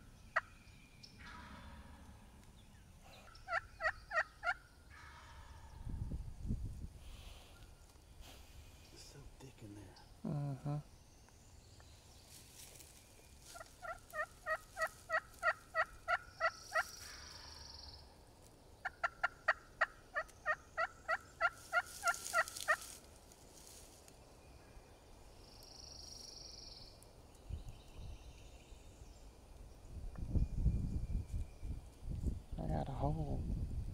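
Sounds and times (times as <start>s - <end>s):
wild turkey calling: 0.0s - 5.9s, 12.6s - 23.8s.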